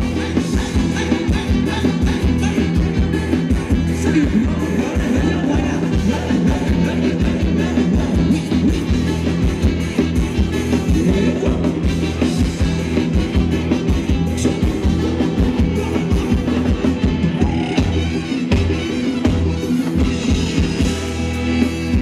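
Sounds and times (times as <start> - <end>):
person singing: 0.0 - 9.2, 10.5 - 18.2
live band dance music: 0.0 - 22.0
steady drum beat: 0.0 - 22.0.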